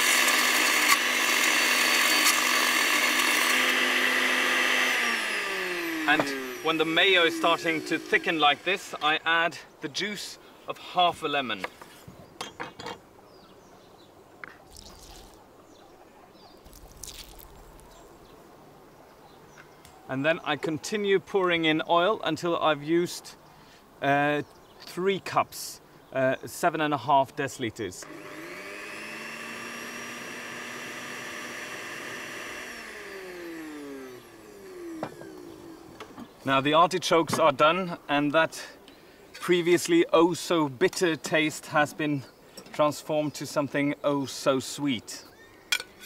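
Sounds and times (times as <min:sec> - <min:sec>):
blender running: 0:00.0 - 0:09.1, 0:16.7 - 0:17.9, 0:28.0 - 0:36.0
juice dripping: 0:14.6 - 0:15.4, 0:16.6 - 0:18.1
lemon squelching: 0:14.6 - 0:15.4, 0:16.6 - 0:18.1.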